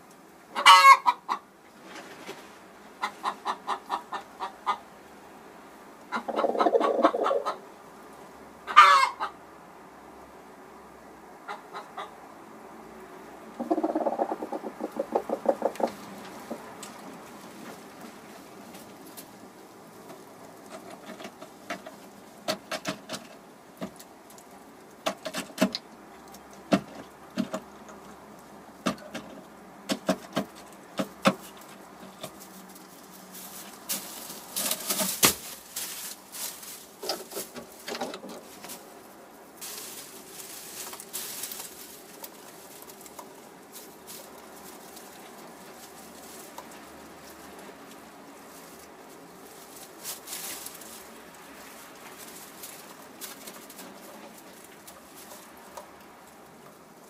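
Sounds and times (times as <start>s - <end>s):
straw rustling: 1.7s - 3.3s, 13.6s - 57.0s
hen pecking taps: 13.6s - 17.0s.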